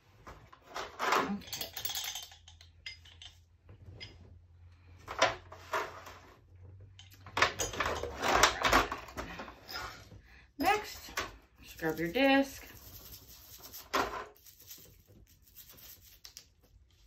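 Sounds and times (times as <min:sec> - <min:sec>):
metal parts clattering on foil tray: 0:00.7 - 0:03.4.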